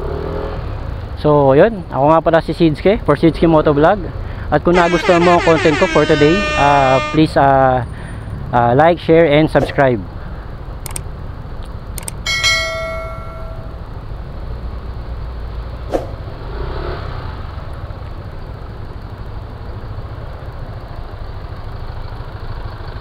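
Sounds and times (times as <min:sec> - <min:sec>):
short clicks: 0:10.8 - 0:11.0, 0:12.0 - 0:12.2
bell-like ding: 0:12.3 - 0:13.8.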